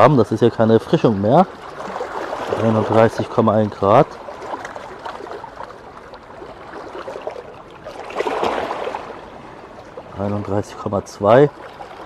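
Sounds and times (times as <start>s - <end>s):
waves splashing over rocks: 1.3s - 12.0s.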